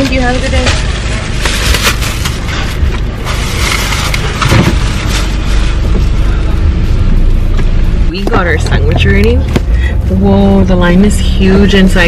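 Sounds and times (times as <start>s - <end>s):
plastic bag rustling: 0.0s - 6.4s
car engine idling: 0.0s - 12.0s.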